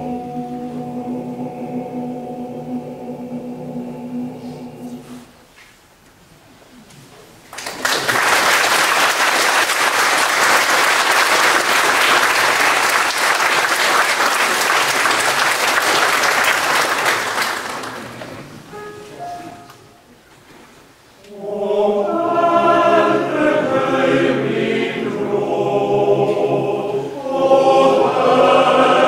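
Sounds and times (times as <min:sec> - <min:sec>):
audience applauding: 0:07.5 - 0:18.7.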